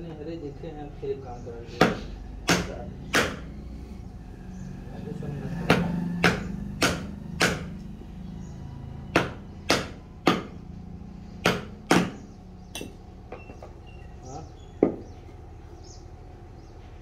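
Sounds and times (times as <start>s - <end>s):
hammer striking wood chisel: 1.8s - 3.5s, 5.7s - 7.8s, 9.1s - 10.6s, 11.4s - 13.6s, 14.8s - 15.0s.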